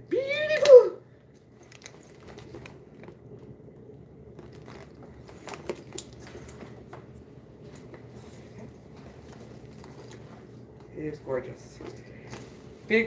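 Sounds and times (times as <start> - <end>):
leather bag rustling: 1.6 - 3.1, 4.4 - 6.4.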